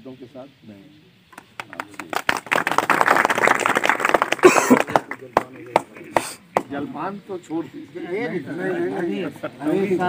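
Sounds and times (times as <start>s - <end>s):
crowd applauding: 1.4s - 6.4s.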